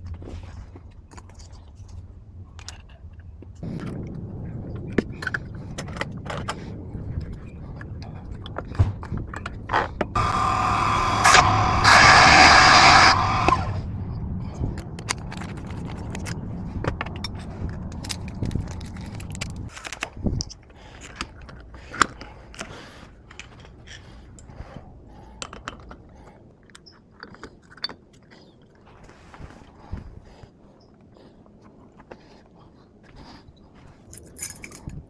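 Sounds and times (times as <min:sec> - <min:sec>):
low rumble: 0:02.1 - 0:20.9
sharp clicks and scrapes: 0:04.8 - 0:13.9, 0:14.5 - 0:30.0
keys and lock parts jangling: 0:17.0 - 0:24.4, 0:34.0 - 0:35.0.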